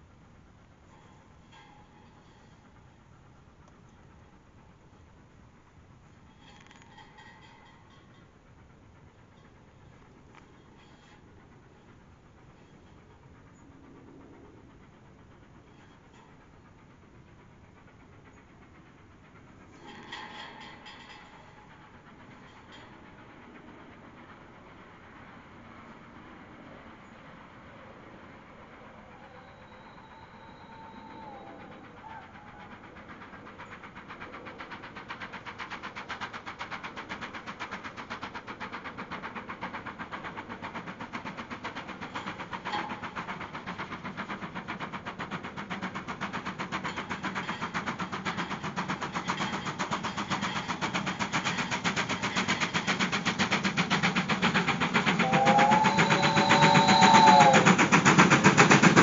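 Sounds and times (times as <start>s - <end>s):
steam locomotive exhaust beats: 0.0s - 59.0s
faint distant whistle: 28.9s - 32.6s, 55.2s - 57.9s
steam whistle: 29.2s - 32.5s, 55.2s - 58.0s.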